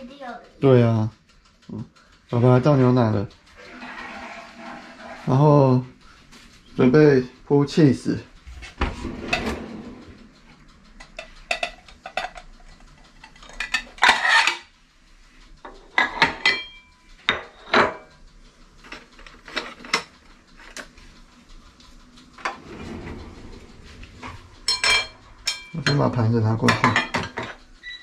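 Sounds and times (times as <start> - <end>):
utensils rattling: 1.6 - 6.8, 9.0 - 14.7, 22.0 - 27.9.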